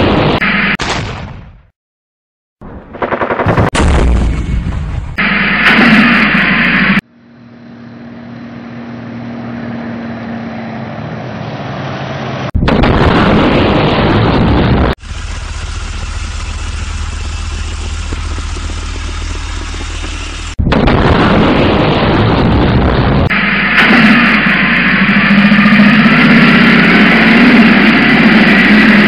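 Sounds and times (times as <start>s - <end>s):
rumble: 2.6s - 9.7s, 12.4s - 29.0s
loud explosion: 2.9s - 7.0s, 12.5s - 29.0s
engine-like drone: 5.2s - 29.0s.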